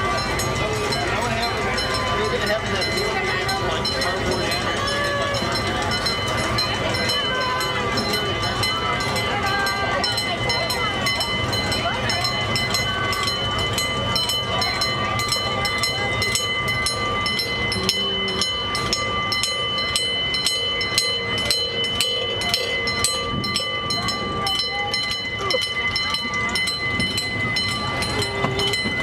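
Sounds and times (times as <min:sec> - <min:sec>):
miniature train rumble: 0:00.0 - 0:29.0.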